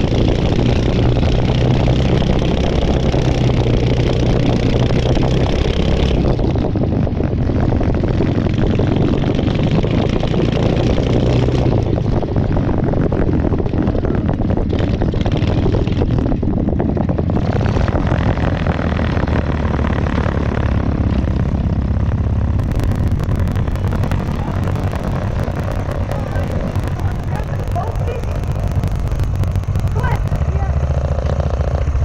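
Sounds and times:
tractor engine running: 0:00.0 - 0:32.0
crackling hiss: 0:22.6 - 0:30.5.

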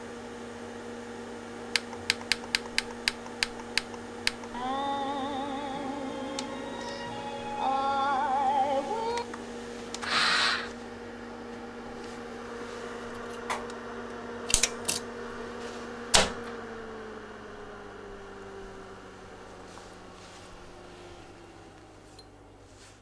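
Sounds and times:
electrical hum: 0:00.0 - 0:23.0
wavering electronic tone: 0:04.5 - 0:09.2
hiss: 0:10.0 - 0:10.8.

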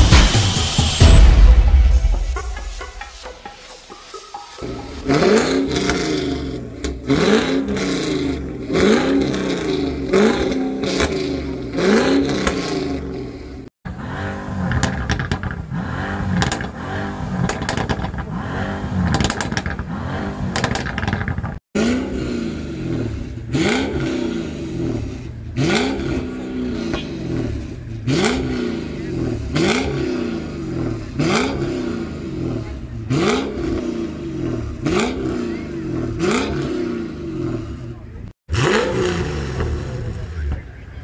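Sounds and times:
car engines revving: 0:02.0 - 0:41.0.

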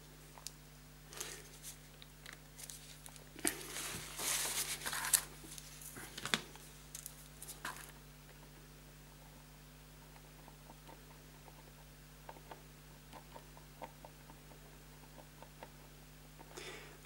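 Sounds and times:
paper tissue rustling and crumpling: 0:02.6 - 0:07.9.

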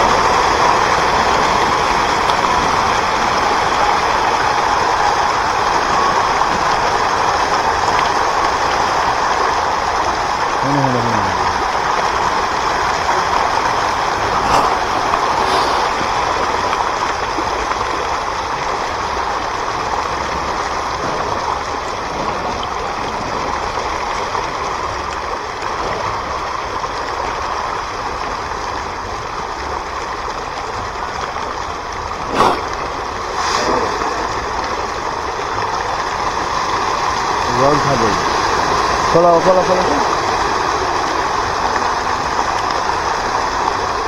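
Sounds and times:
flowing water: 0:00.0 - 0:44.0.

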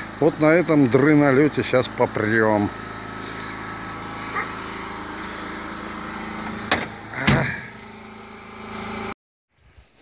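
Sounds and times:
vehicle engine idling: 0:00.0 - 0:09.1
door slamming: 0:06.7 - 0:07.6.

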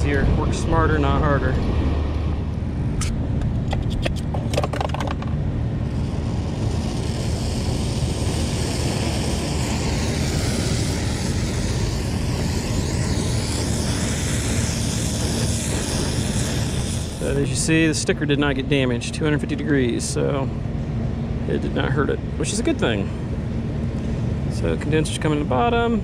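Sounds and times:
low rumble: 0:00.0 - 0:26.0
flint striker scraping: 0:03.0 - 0:17.6
torch burning with steady hiss: 0:05.8 - 0:18.0.

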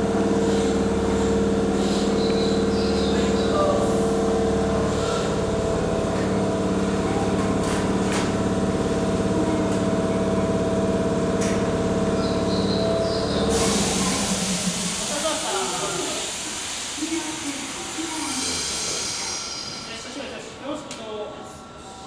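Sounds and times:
electric train equipment humming: 0:00.0 - 0:20.6
loud hiss of air: 0:13.5 - 0:19.9.

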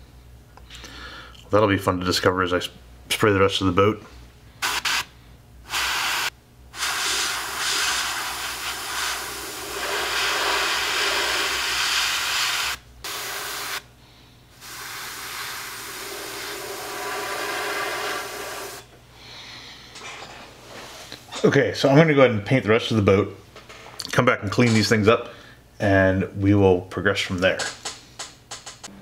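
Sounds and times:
airbrush hissing: 0:04.6 - 0:13.9, 0:14.6 - 0:18.9.

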